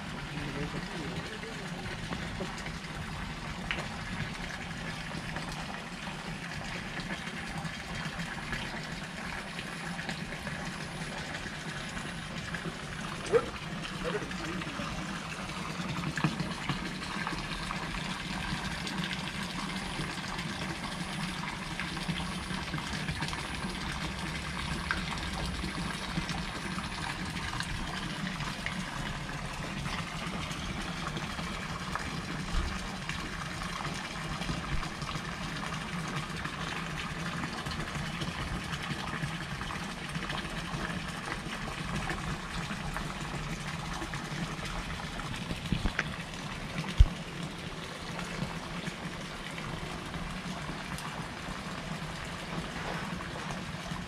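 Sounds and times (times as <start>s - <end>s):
running water: 0.0s - 54.0s.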